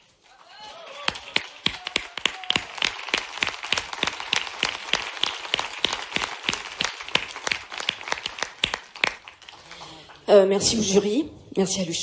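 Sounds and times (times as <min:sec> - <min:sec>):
audience applauding: 0:00.0 - 0:10.0
loud nearby hand clapping: 0:00.6 - 0:09.8.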